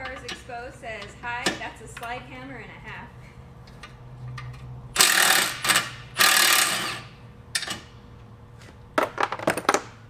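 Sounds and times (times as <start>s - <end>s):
impact wrench hammering nuts: 5.0s - 7.8s.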